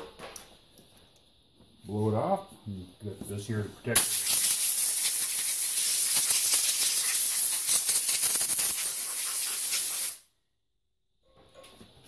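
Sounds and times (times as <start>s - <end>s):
compressed air blow gun hissing: 4.0s - 10.3s.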